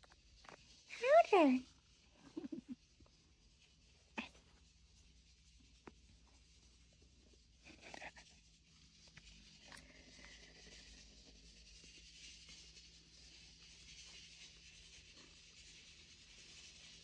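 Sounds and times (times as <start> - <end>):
cat fur rustling: 0.0 - 17.0.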